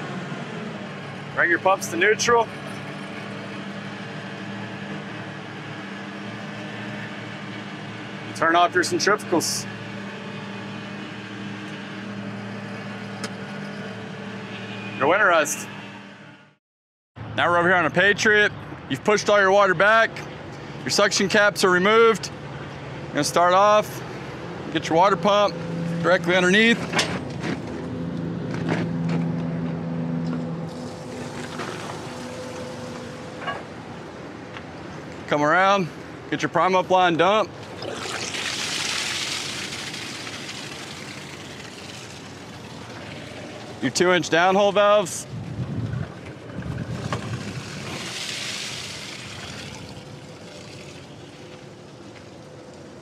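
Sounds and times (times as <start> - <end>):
engine idling hum: 0.0 - 16.4, 18.6 - 53.0
water gushing onto gravel: 30.7 - 32.9, 37.7 - 43.8, 46.9 - 51.7.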